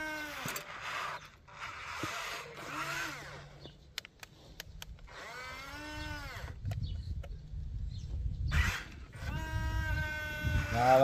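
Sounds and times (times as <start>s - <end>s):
small electric motors whirring: 0.0s - 7.6s, 8.4s - 11.0s
sharp clicks: 3.6s - 5.2s.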